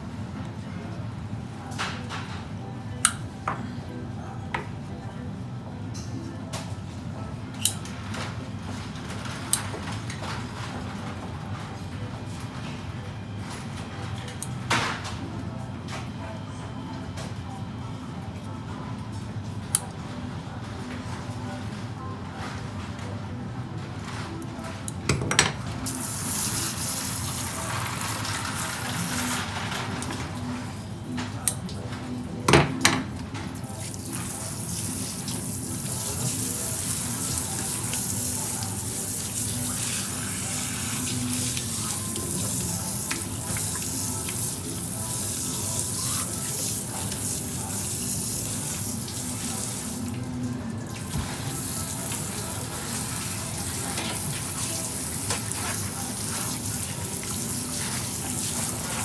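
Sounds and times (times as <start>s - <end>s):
sprayer water hissing onto fish: 25.9s - 29.5s, 33.8s - 50.1s, 51.0s - 59.0s.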